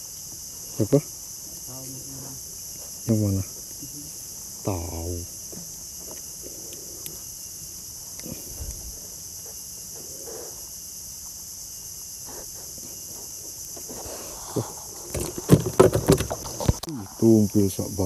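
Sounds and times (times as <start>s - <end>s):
insects chorus: 0.0s - 18.0s
knocks and rustles handling fish: 14.8s - 16.8s.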